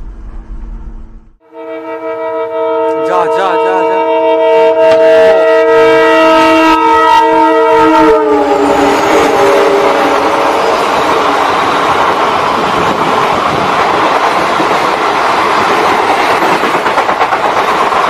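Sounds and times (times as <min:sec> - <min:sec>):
locomotive air horn blaring: 0:01.4 - 0:11.3
train rushing past: 0:05.0 - 0:18.0.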